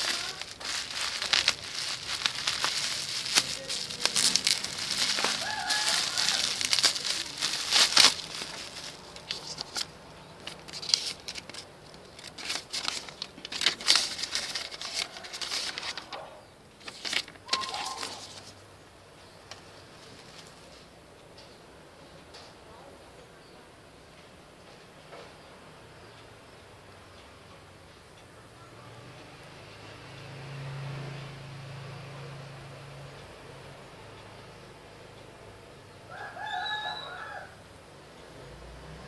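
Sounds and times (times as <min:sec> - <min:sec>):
bubble wrap crackling: 0:00.0 - 0:18.6, 0:20.0 - 0:20.7
wrapping paper rustling: 0:00.0 - 0:18.6, 0:19.5 - 0:20.8.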